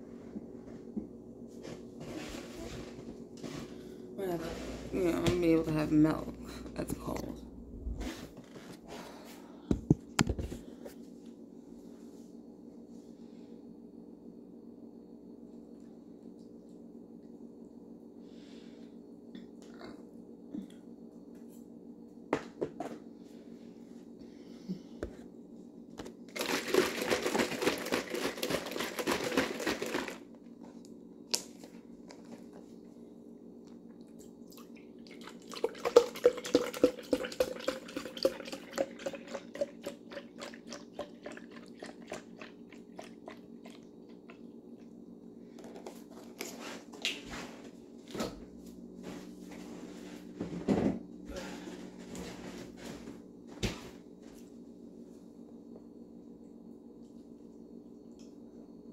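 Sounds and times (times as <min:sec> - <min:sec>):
liquid pouring into container: 0:34.5 - 0:44.4.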